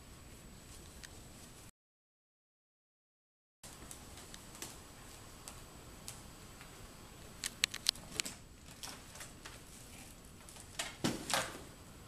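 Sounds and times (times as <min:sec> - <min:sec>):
sharp light clicks and taps: 0:07.4 - 0:09.6.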